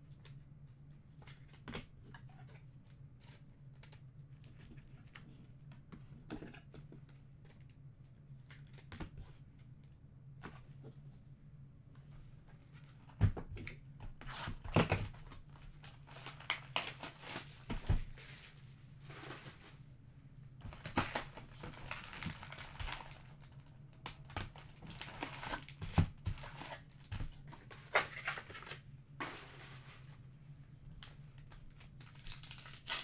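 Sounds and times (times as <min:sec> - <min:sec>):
card pack wrappers crinkling: 0:14.8 - 0:18.6, 0:20.6 - 0:27.2, 0:31.4 - 0:33.0.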